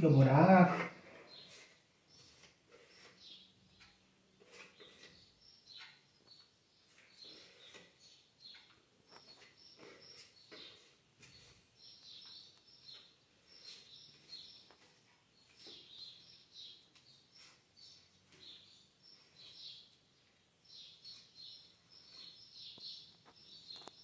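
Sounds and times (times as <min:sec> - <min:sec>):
putty knife scraping wall: 0:04.4 - 0:05.9.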